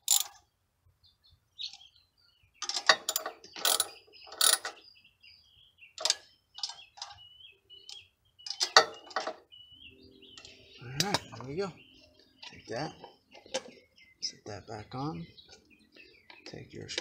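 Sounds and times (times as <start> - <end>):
ratchet wrench clicking: 0.0 - 0.4.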